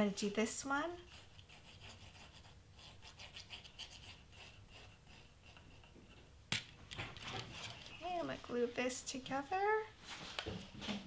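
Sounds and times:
glue nozzle scratching on cardstock: 1.0 - 6.0.

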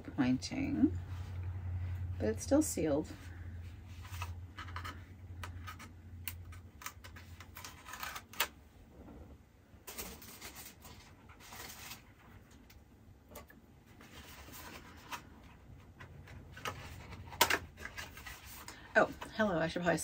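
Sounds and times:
cardboard packaging crackling: 5.5 - 8.6, 9.9 - 12.2.

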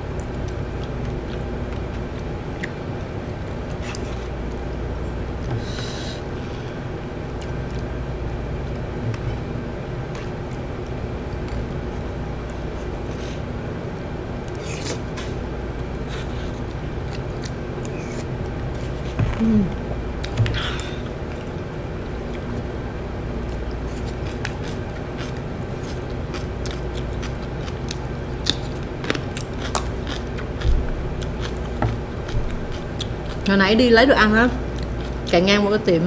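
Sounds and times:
person chewing: 0.0 - 22.7, 23.3 - 33.5, 34.7 - 35.3
steady low hum: 0.0 - 36.0.

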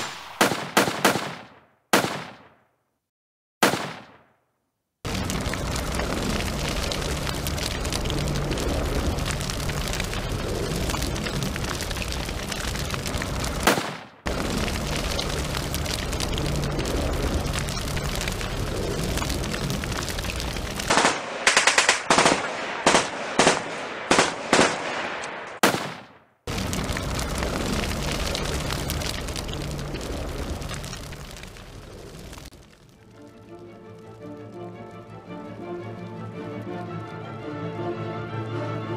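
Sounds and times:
machine-gun fire: 0.0 - 2.6, 3.6 - 4.3, 13.6 - 14.2, 20.9 - 26.2
separate sharp gunshots: 0.0 - 2.8, 3.6 - 4.4, 13.6 - 14.3, 20.9 - 26.4.

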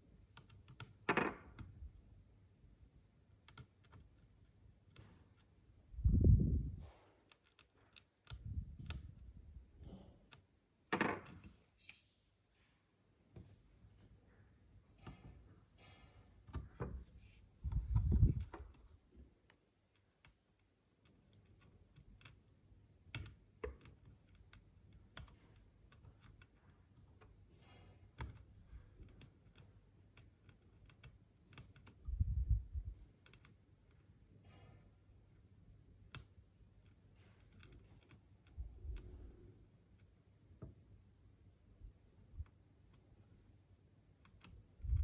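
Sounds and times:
metal tool clicking on pins: 0.2 - 1.8, 6.8 - 10.5, 19.8 - 22.5, 23.1 - 27.4, 28.1 - 32.1, 33.2 - 34.1, 36.0 - 39.2, 44.2 - 45.0.

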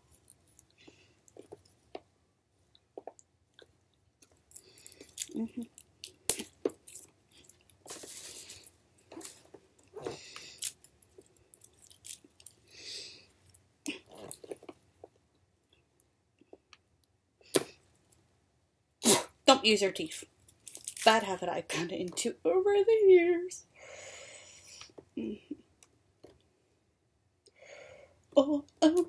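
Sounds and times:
plastic packaging crinkling: 4.7 - 10.0.

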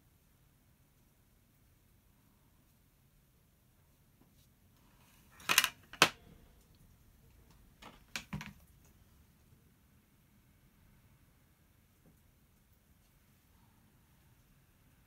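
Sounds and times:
painting supplies clattering on wood: 5.1 - 6.3, 7.8 - 8.7.

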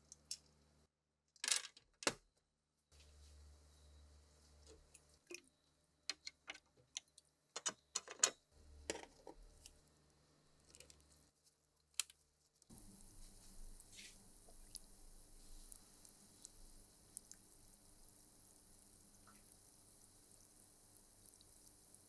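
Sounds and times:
steady hiss: 12.7 - 22.0
water dripping: 12.7 - 22.0.

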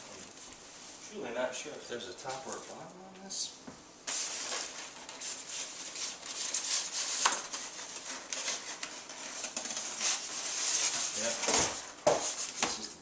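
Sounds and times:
plastic wrap rustling: 2.2 - 2.8, 4.1 - 13.0
foam scraping against foam: 4.1 - 12.6.

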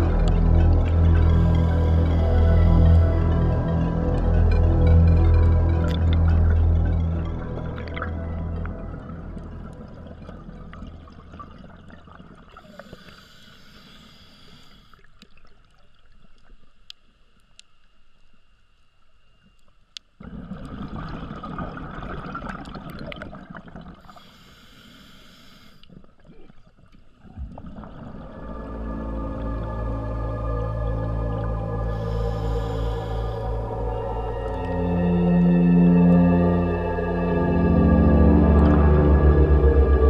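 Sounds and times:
hissing regulator inhales: 12.6 - 15.0, 24.1 - 25.9, 31.8 - 33.8
faint clicks: 14.4 - 20.2
gurgling exhaled bubbles: 20.2 - 24.1, 27.2 - 29.6.

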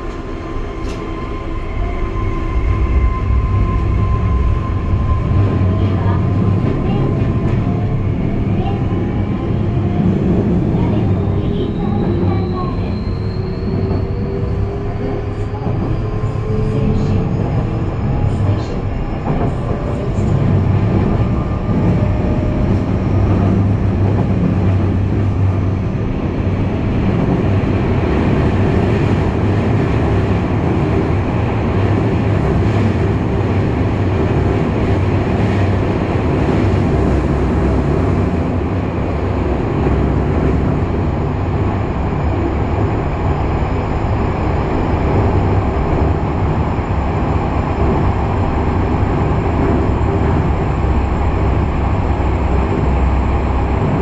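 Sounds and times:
wheels rumbling on rail: 0.0 - 54.0.

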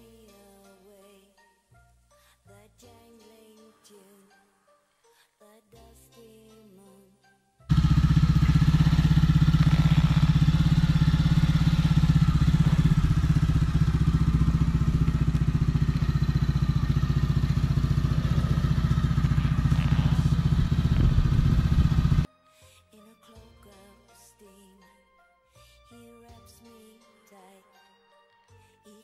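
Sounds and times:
motorcycle engine idling: 7.7 - 22.3.

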